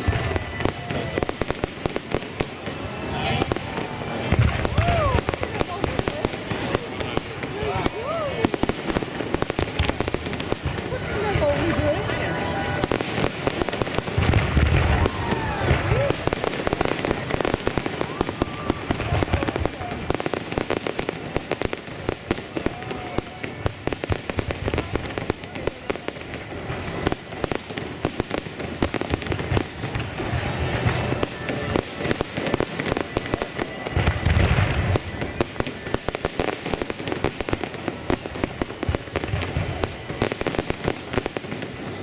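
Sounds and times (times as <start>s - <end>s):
heavy firework booms: 0.0s - 11.8s, 12.8s - 41.6s
fireworks crackling and popping: 0.0s - 42.0s.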